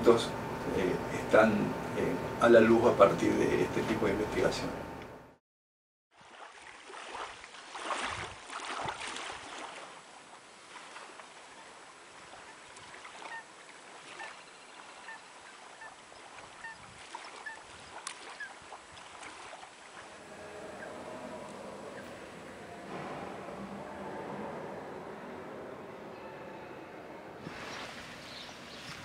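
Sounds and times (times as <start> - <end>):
water lapping and splashing: 6.1 - 24.7, 27.4 - 29.0
high waterbird calls: 10.7 - 22.6, 27.5 - 29.0.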